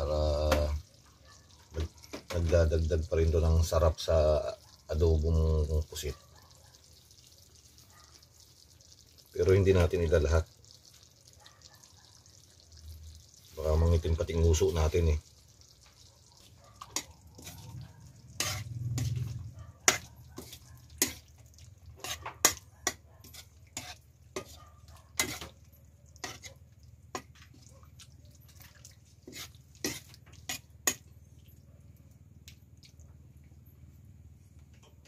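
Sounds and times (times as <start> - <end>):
metal spatula scraping wok: 18.2 - 21.2, 22.0 - 24.6, 25.2 - 25.6, 26.2 - 26.6, 29.2 - 31.0.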